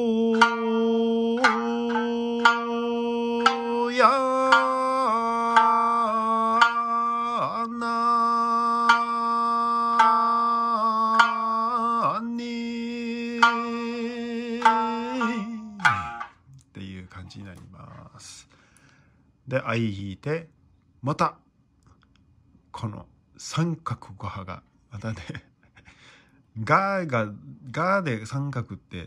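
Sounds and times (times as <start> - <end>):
plucked lute: 0.0 - 7.7, 8.7 - 12.2, 13.3 - 16.4
person singing long notes: 0.0 - 16.4.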